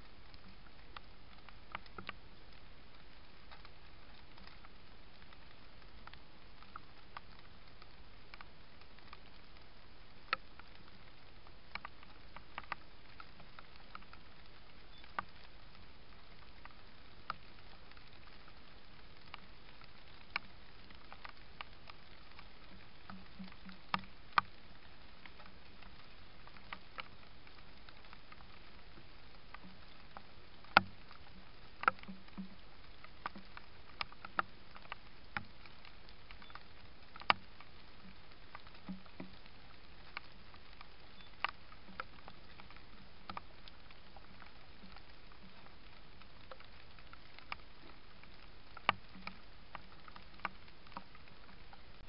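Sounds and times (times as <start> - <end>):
microphone hiss: 0.0 - 52.0
sharp ticks and taps: 0.3 - 2.2, 10.2 - 14.2, 19.2 - 24.6, 25.2 - 52.0.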